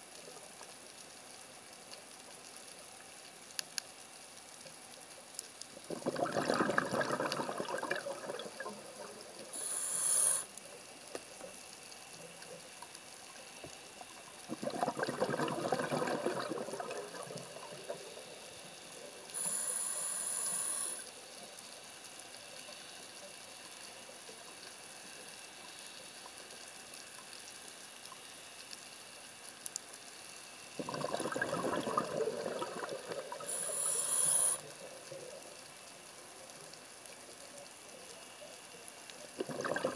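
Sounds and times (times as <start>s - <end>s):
bubbling underwater exhalations: 5.9s - 9.3s, 14.5s - 18.4s, 30.8s - 34.8s, 39.3s - 39.9s
high hissing regulator inhalations: 9.5s - 10.5s, 19.3s - 21.1s, 33.3s - 34.7s.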